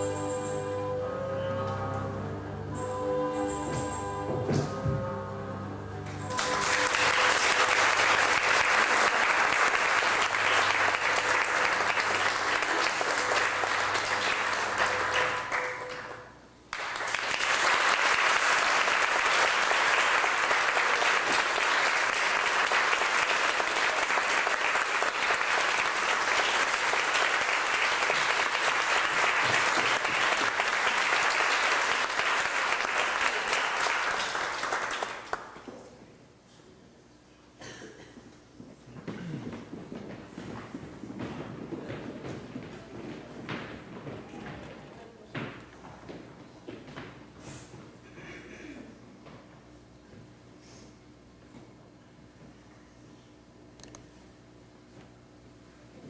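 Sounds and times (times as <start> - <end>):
audience applauding: 6.3 - 35.7.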